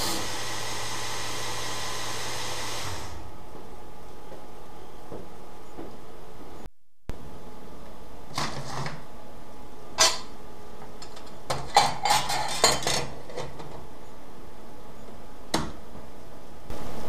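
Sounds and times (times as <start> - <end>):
metal parts clanking on workbench: 11.6 - 13.6.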